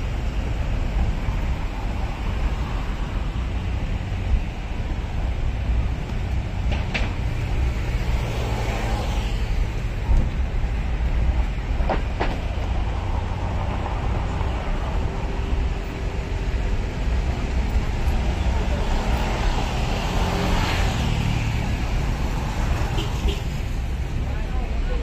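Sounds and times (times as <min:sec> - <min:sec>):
road traffic rumble: 0:00.0 - 0:25.0.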